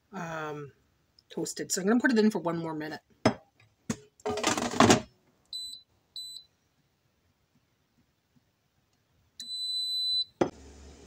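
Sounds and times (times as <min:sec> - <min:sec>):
air fryer beeps: 0:09.4 - 0:10.4.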